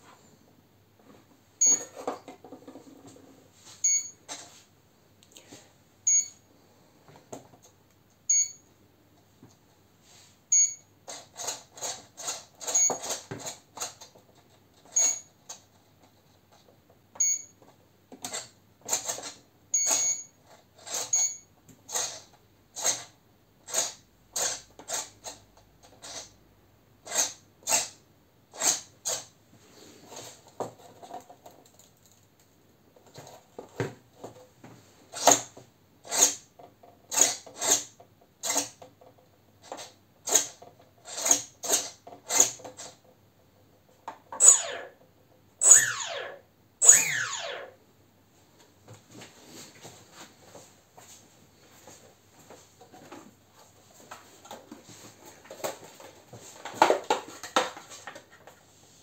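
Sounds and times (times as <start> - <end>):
short high electronic beep: 3.8 - 4.1, 6.1 - 6.4, 8.3 - 8.6, 10.5 - 10.8, 15.0 - 15.3, 19.8 - 20.3, 45.6 - 47.6
servos buzzing: 44.4 - 44.9, 45.6 - 47.7.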